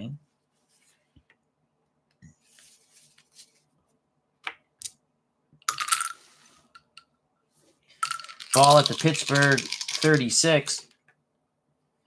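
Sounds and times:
cards rustling: 8.0 - 10.8.

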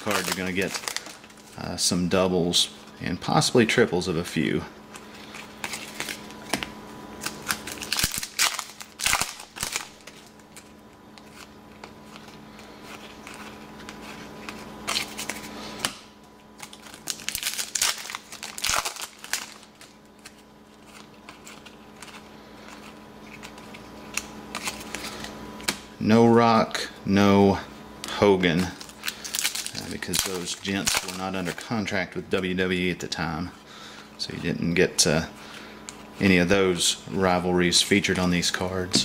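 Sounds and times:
foil wrapper crinkling: 0.0 - 3.4, 4.9 - 25.6, 28.4 - 33.0
faint steady hum: 0.0 - 39.0
trading cards sliding: 4.9 - 25.8.

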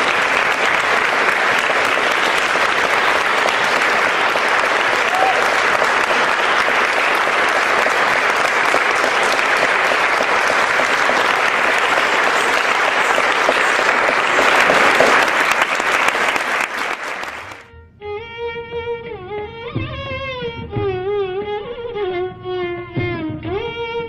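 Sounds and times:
audience applause: 0.0 - 17.7.

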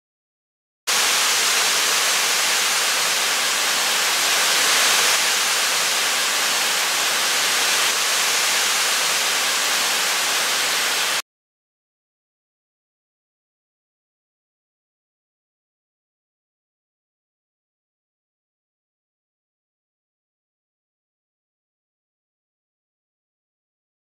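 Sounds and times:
waterfall rushing: 0.9 - 11.2.

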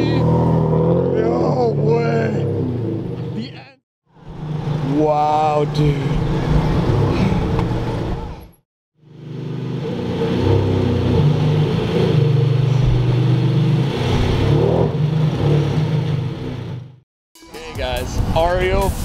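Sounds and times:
sports car engine at low revs: 9.0 - 17.0.

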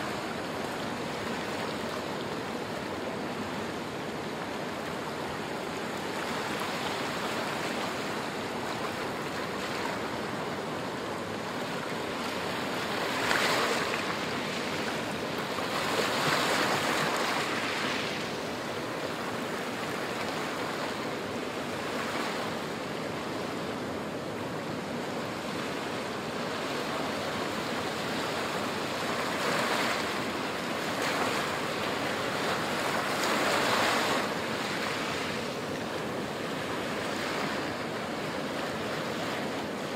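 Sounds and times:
waves breaking on shore: 0.0 - 39.9.

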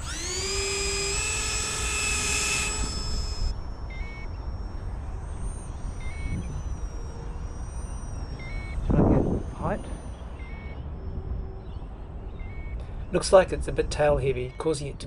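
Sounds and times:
electric fans whining: 0.0 - 15.0
short beeps: 2.7 - 11.0, 11.8 - 12.9.

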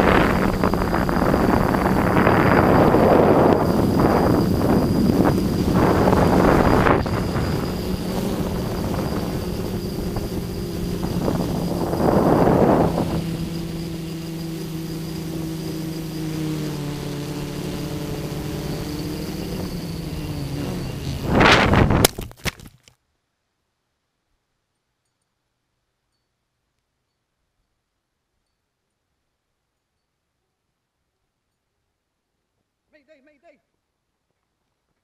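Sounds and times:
loud rush of air: 0.0 - 15.8, 16.6 - 22.2
wind buffeting microphone: 0.0 - 15.8, 17.2 - 22.2
drone propellers droning: 0.0 - 22.1.

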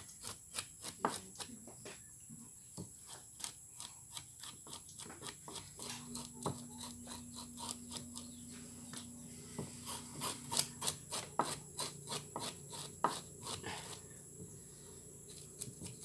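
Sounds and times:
knife scraping fish scales: 0.0 - 1.5, 3.0 - 9.1, 9.7 - 14.1, 15.2 - 16.0.

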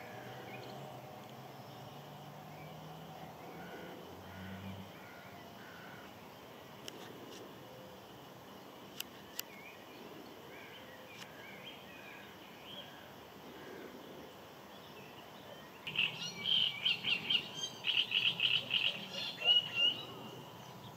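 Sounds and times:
birds chirping: 7.7 - 20.9.

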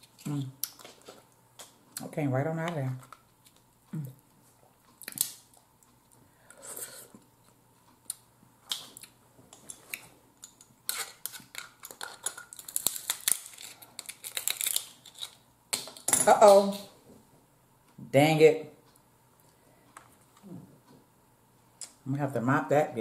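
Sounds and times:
crab shells cracking by hand: 5.0 - 5.6, 10.4 - 15.4
crab cracker crackling and clicking: 5.0 - 5.7, 10.4 - 15.4.

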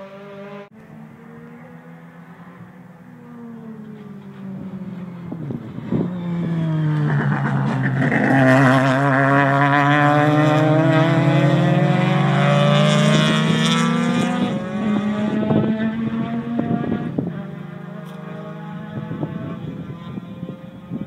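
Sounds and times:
race cars driving past: 0.0 - 21.0.

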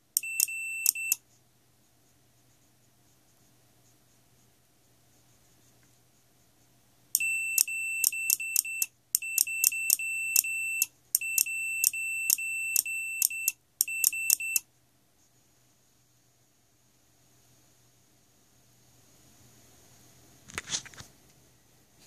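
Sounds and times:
high-pitched morse code beeps: 0.2 - 1.2, 7.2 - 14.6.

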